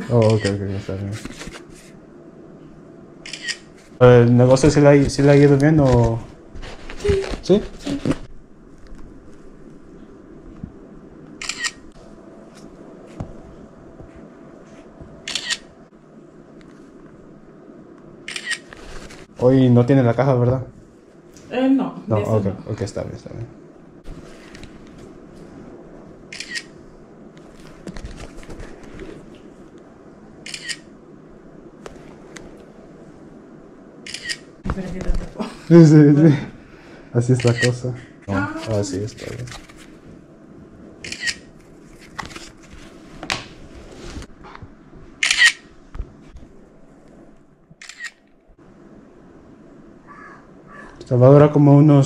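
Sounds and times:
camera shutter: 0:03.2 - 0:03.7, 0:11.4 - 0:11.8, 0:15.3 - 0:15.7, 0:18.3 - 0:18.7, 0:26.3 - 0:26.8, 0:30.4 - 0:30.9, 0:34.0 - 0:34.5, 0:41.0 - 0:41.5, 0:45.2 - 0:45.6, 0:47.8 - 0:48.2.

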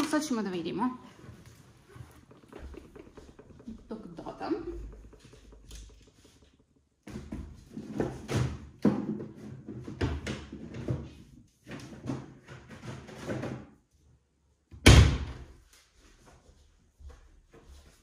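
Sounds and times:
objects clattering: 0:01.1 - 0:13.7.

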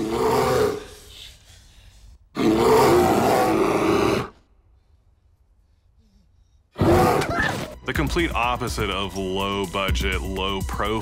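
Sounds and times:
bear roaring: 0:00.0 - 0:01.0, 0:02.4 - 0:04.4, 0:06.8 - 0:07.4.

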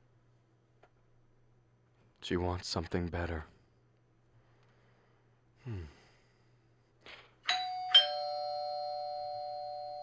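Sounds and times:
two-tone doorbell chime: 0:07.5 - 0:10.0.

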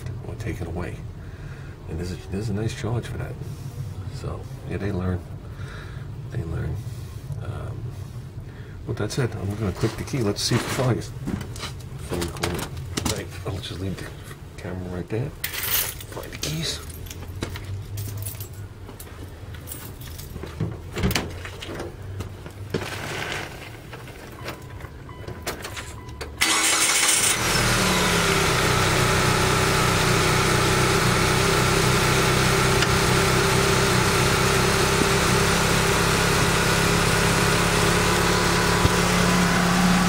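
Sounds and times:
car engine cranking and starting: 0:21.9 - 0:40.0
car engine fast idle: 0:26.4 - 0:40.0.

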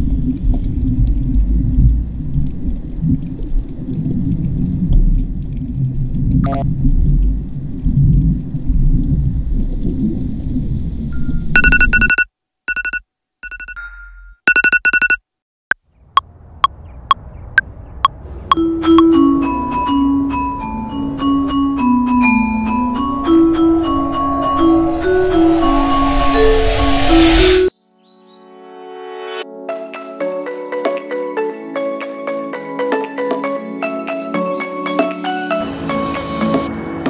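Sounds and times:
low underwater rumble: 0:00.0 - 0:11.1, 0:18.6 - 0:27.7
stuttering electronic beeps: 0:06.4 - 0:06.6
synth music with bass line: 0:18.5 - 0:27.7.

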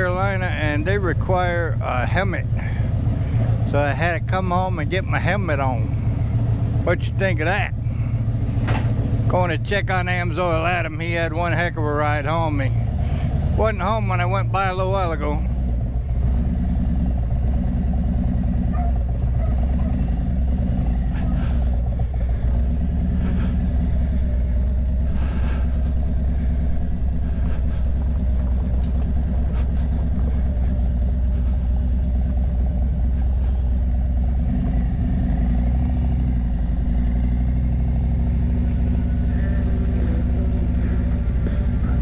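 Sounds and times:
motorcycle engine running: 0:00.0 - 0:42.0.

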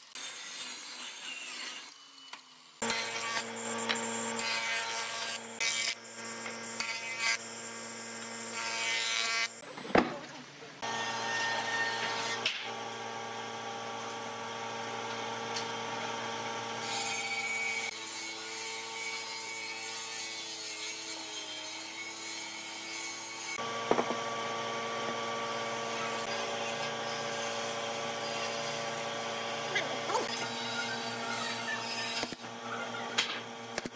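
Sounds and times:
power tool motor hum: 0:01.6 - 0:09.6, 0:10.8 - 0:18.0.

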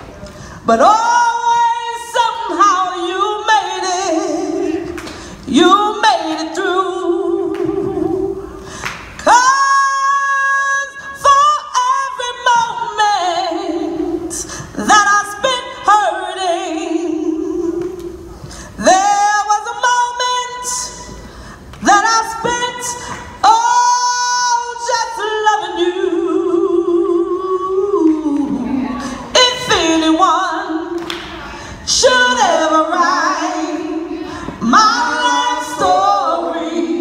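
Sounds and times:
woman singing soul ballad: 0:21.8 - 0:37.0.

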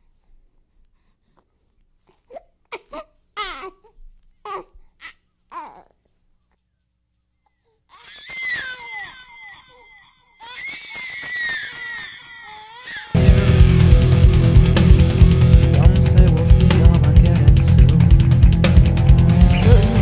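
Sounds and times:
baby babbling: 0:02.1 - 0:06.1, 0:07.6 - 0:13.2
baby wailing: 0:02.2 - 0:06.0, 0:07.9 - 0:13.2.

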